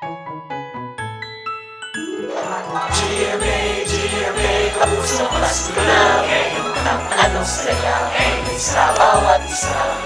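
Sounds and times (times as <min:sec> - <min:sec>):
festive sleigh percussion shaking: 0:02.0 - 0:10.0
upbeat pop song: 0:02.2 - 0:10.0
voices singing: 0:02.2 - 0:10.0
pulsing bass line: 0:02.9 - 0:09.0.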